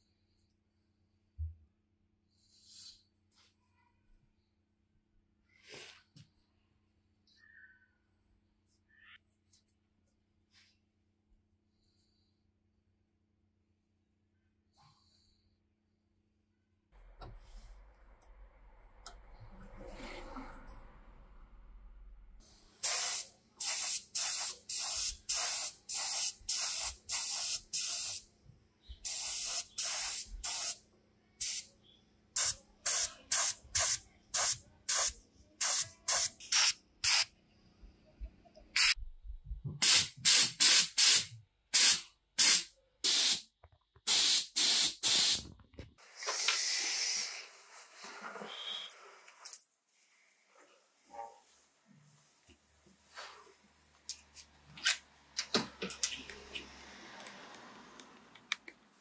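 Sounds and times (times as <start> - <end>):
sprayer hissing in short bursts: 22.8 - 28.2, 29.0 - 30.8, 32.4 - 37.3, 39.8 - 43.4, 44.1 - 45.4, 46.2 - 47.7.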